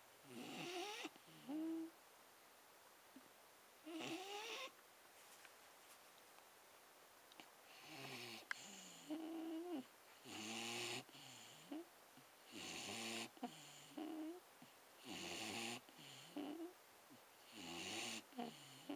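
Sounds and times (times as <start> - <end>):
dog snoring: 0.2 - 1.9, 3.8 - 4.7, 7.7 - 11.9, 12.5 - 14.4, 15.0 - 16.8, 17.4 - 18.9.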